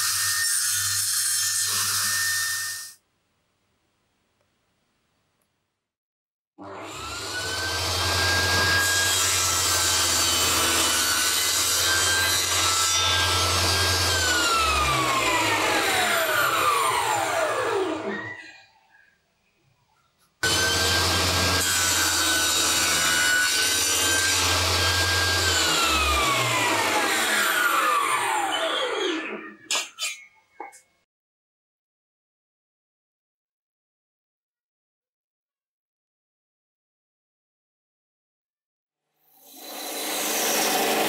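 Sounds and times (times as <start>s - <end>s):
table saw whining: 6.6s - 18.6s, 20.4s - 30.2s, 39.3s - 41.0s.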